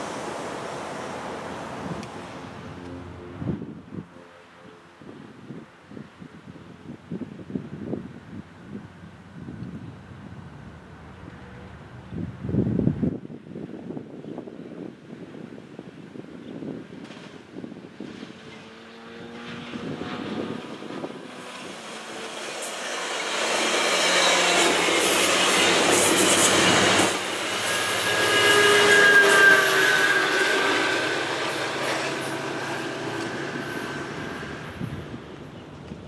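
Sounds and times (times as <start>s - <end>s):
train wheels rumbling and clacking: 21.4s - 36.0s
high wheel squeal: 22.1s - 35.6s.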